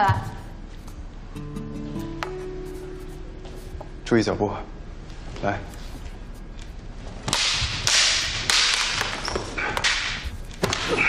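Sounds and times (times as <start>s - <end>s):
bamboo swords clacking: 7.2s - 11.0s
bamboo swords swishing: 7.2s - 11.0s.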